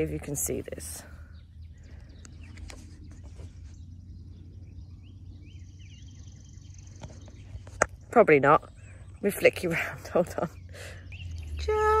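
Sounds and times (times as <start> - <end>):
low outdoor rumble: 0.0 - 12.0
bird chirps: 0.2 - 12.0.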